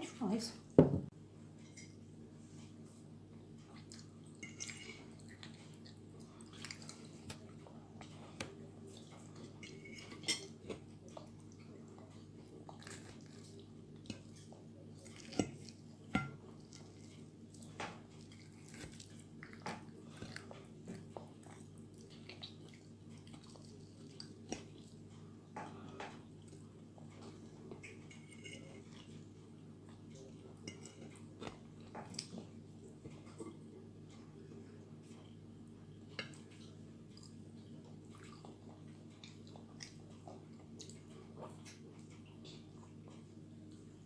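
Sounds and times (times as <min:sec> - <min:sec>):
child chewing and licking fingers: 0:03.7 - 0:15.8, 0:36.1 - 0:43.9.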